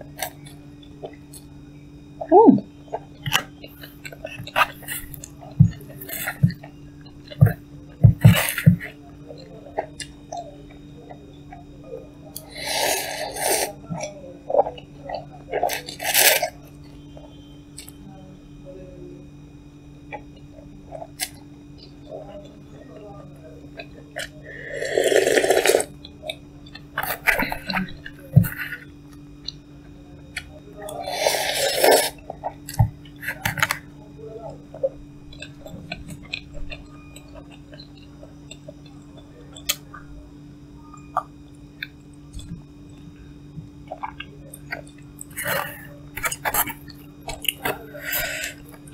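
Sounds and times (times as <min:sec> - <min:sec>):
chewing: 0:02.9 - 0:11.6, 0:23.7 - 0:33.9, 0:34.5 - 0:40.2, 0:40.9 - 0:48.9
noodles slurped: 0:24.7 - 0:25.9, 0:31.0 - 0:32.2, 0:44.0 - 0:48.8
loud noodle slurps: 0:24.8 - 0:25.9, 0:31.1 - 0:32.2.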